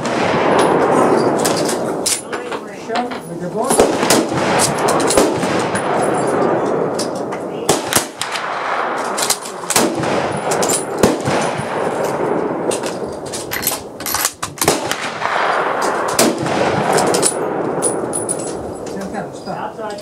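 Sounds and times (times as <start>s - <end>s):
rifle shots: 0.0s - 2.6s, 3.7s - 18.8s
echoing gunfire report: 0.0s - 20.0s.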